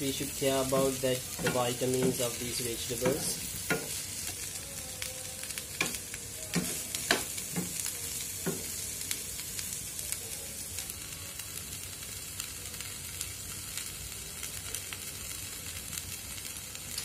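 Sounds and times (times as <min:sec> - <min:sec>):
vegetables sizzling in a frying pan: 0:00.0 - 0:17.0
wooden spatula knocking a pan: 0:00.7 - 0:02.4, 0:03.0 - 0:04.0, 0:05.8 - 0:07.8, 0:08.4 - 0:08.7.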